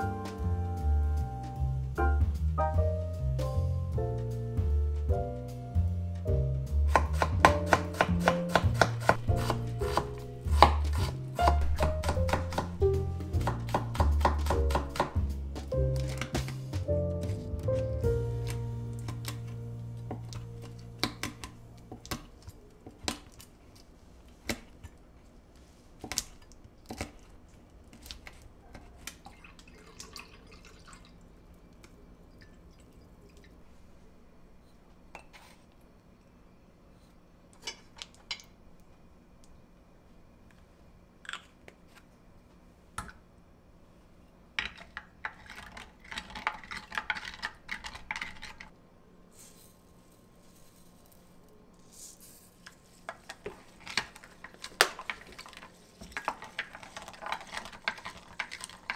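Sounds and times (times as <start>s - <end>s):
spoon stirring in glass jug: 53.4s - 58.9s.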